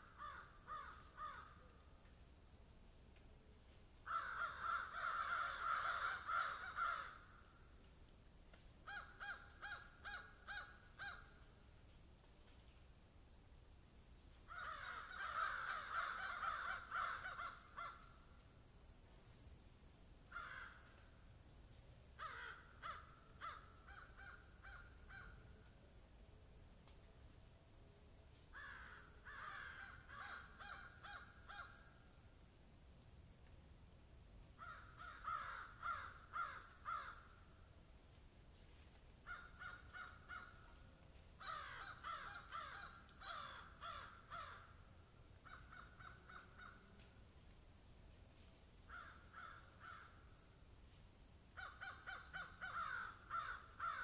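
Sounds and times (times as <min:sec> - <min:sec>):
crows cawing: 0:00.0 - 0:01.6, 0:04.1 - 0:07.5, 0:08.8 - 0:11.4, 0:14.5 - 0:18.2, 0:20.3 - 0:21.0, 0:22.2 - 0:25.4, 0:28.6 - 0:31.9, 0:34.6 - 0:37.4, 0:39.3 - 0:40.7, 0:41.4 - 0:44.8, 0:45.4 - 0:46.8, 0:48.9 - 0:50.2, 0:51.6 - 0:54.0.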